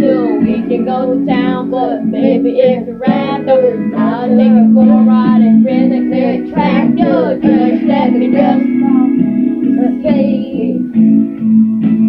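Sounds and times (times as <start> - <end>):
person singing: 0.0 - 11.1
sustained backing notes: 0.0 - 12.0.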